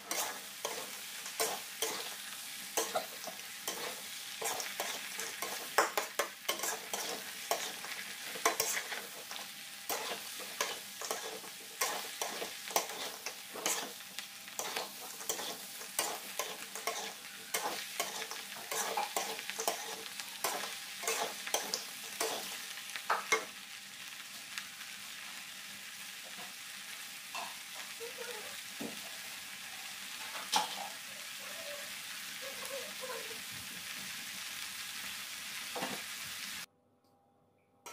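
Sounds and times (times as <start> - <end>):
metal spatula scraping a wok: 0.0 - 22.7
frying sizzle: 0.0 - 36.7.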